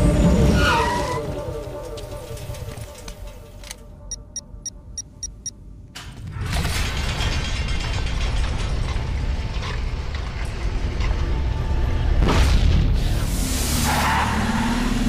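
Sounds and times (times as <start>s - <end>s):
heavy stone door grinding open: 6.0s - 12.0s.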